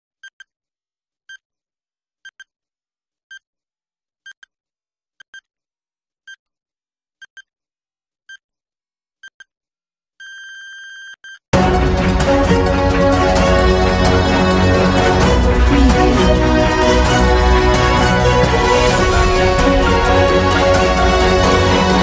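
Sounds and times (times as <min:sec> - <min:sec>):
electronic timer beeps: 0:10.2 - 0:11.4.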